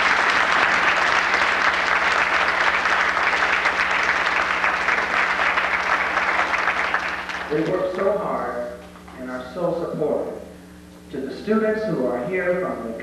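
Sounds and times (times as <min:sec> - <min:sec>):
audience applauding: 0:00.0 - 0:08.1
steady low hum: 0:00.0 - 0:13.0.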